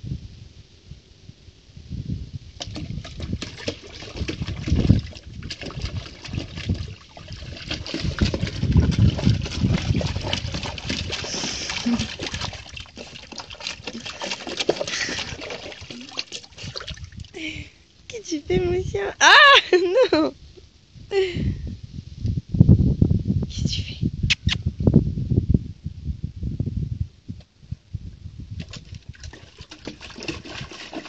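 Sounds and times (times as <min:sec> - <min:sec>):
puppy splashing in water: 0:02.6 - 0:17.4, 0:28.6 - 0:31.0.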